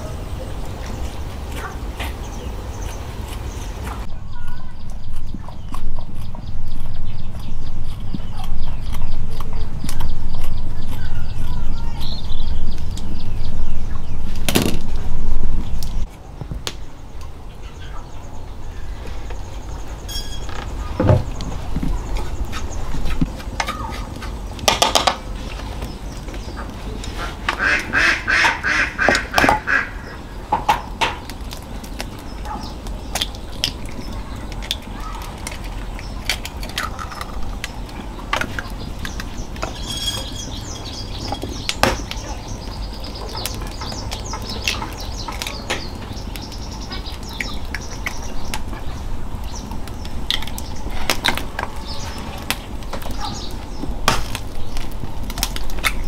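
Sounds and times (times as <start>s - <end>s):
ducks quacking: 26.5s - 30.7s.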